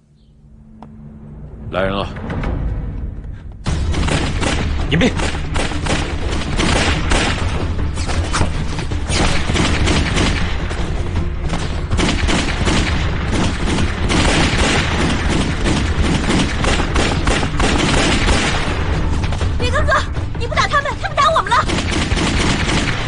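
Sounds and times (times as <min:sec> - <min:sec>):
background music: 0:00.0 - 0:23.0
pistol gunfire: 0:03.9 - 0:07.7, 0:09.1 - 0:10.8, 0:11.5 - 0:19.1, 0:21.6 - 0:23.0.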